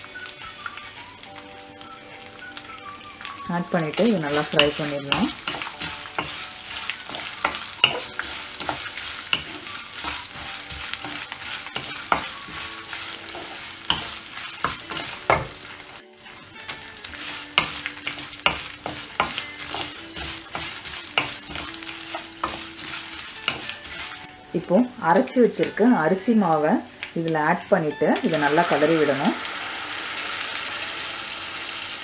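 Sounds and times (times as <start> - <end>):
food sizzling in hot oil: 0.0 - 32.0
wooden spatula scraping a pan: 3.8 - 24.3.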